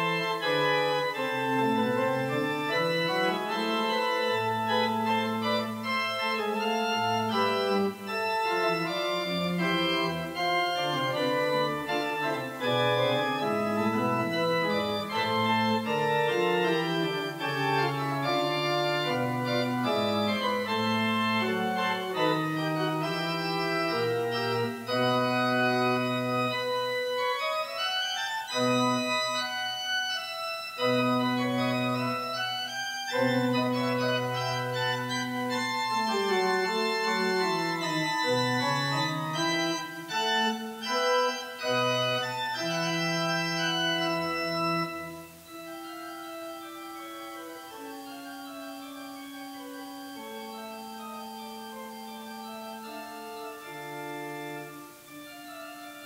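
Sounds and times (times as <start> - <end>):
pipe organ playing chords: 0.0 - 56.0.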